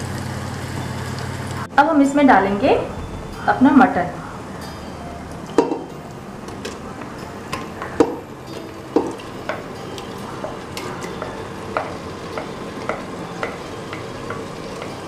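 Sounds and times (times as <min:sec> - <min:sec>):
frying sizzle: 0:00.0 - 0:15.0
spatula knocking on bowl: 0:10.4 - 0:15.0.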